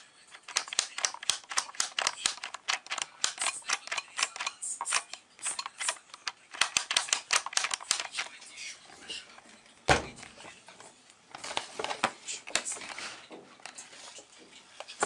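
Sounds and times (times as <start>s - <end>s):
plastic dial clicking: 0.3s - 8.3s.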